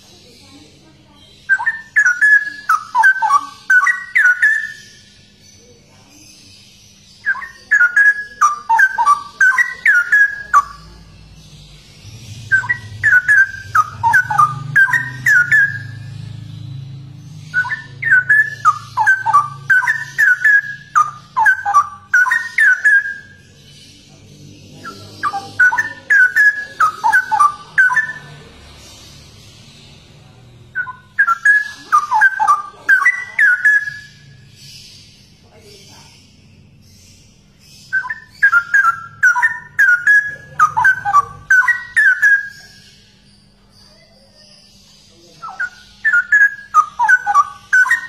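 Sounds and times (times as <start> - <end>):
bulbul whistled song: 1.4 - 5.3, 7.2 - 11.0, 12.3 - 16.3, 17.3 - 23.4, 24.9 - 28.4, 30.7 - 35.2, 37.8 - 43.2, 45.4 - 48.0.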